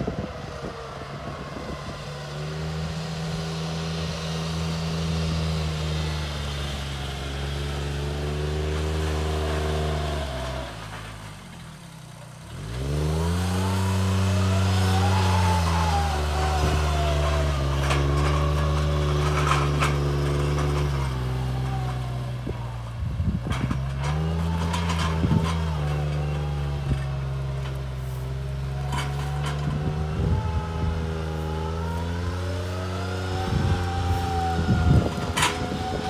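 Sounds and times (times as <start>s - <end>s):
forwarder engine running: 0.0s - 36.0s
wheels knocking over stones: 15.0s - 30.1s.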